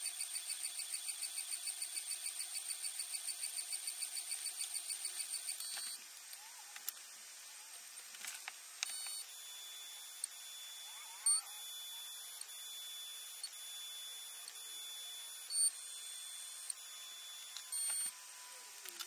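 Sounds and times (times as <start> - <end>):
stepper motors whining: 2.3 - 19.0.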